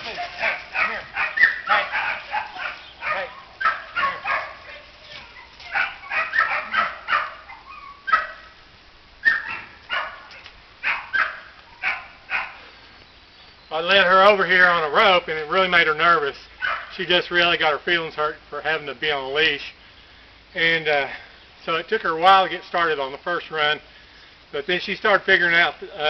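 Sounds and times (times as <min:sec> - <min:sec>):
puppy barking in high yips: 0:00.0 - 0:08.5, 0:09.2 - 0:12.6, 0:16.6 - 0:16.9.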